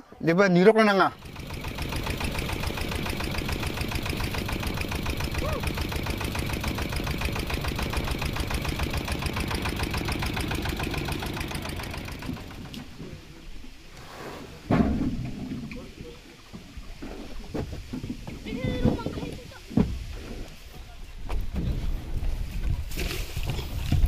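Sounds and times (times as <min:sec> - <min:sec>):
boat engine chugging: 0:00.9 - 0:13.4.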